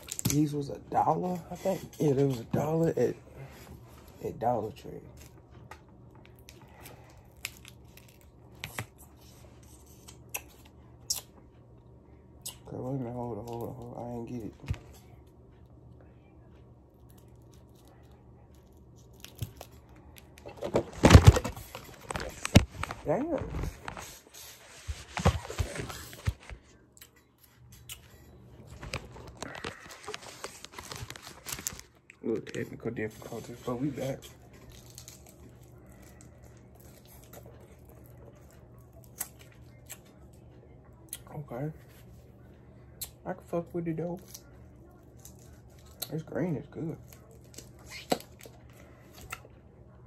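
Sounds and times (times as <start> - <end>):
faint low hum: 0.0 - 50.0
plastic sleeve clicks and crinkles: 28.8 - 32.6.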